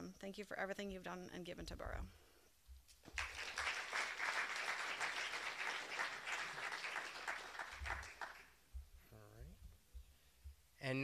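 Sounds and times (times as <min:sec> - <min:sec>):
audience applauding: 0:03.1 - 0:08.6.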